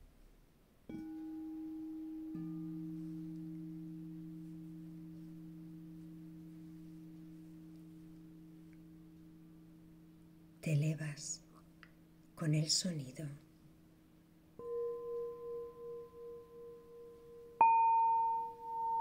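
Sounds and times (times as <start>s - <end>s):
singing bowls ringing: 0.9s - 10.9s, 14.3s - 19.0s.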